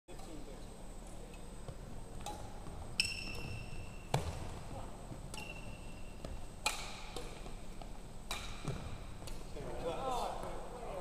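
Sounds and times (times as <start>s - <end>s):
badminton rackets hitting shuttlecock: 2.1s - 9.6s.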